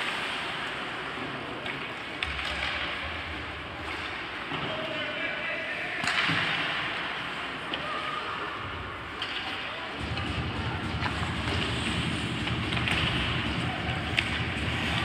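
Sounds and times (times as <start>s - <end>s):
spectators talking: 7.0s - 15.0s
skates and sticks on ice: 9.2s - 15.0s
stick hitting puck crack: 12.4s - 15.0s.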